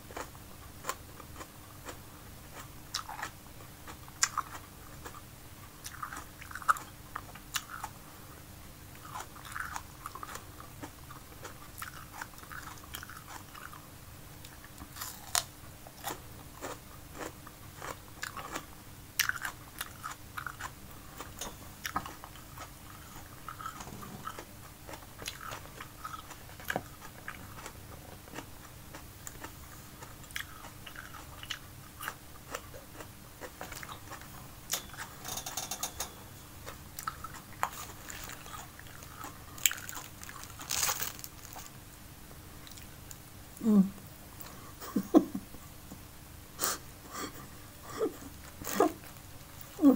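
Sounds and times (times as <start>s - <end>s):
chewing bell pepper: 0.1s - 8.0s, 8.9s - 34.4s, 36.6s - 41.8s
crisp crunches: 37.0s - 41.8s.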